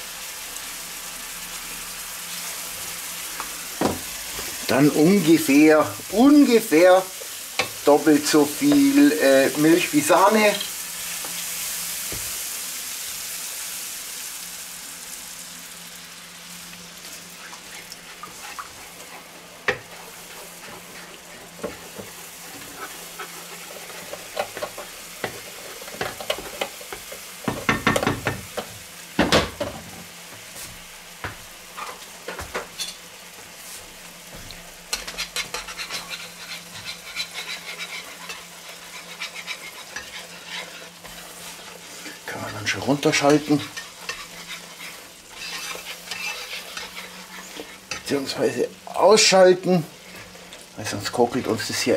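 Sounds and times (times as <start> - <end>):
sauce sizzling in a pan: 0.0 - 51.9
wooden spoon scraping a pan: 17.0 - 28.2, 31.7 - 34.0, 34.9 - 48.5.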